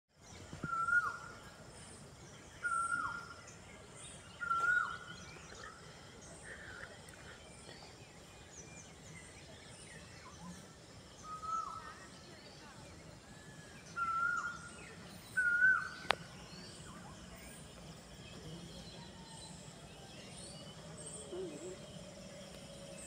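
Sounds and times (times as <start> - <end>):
faint bird chirping: 0.1 - 23.0
bird whistling call: 13.9 - 16.1.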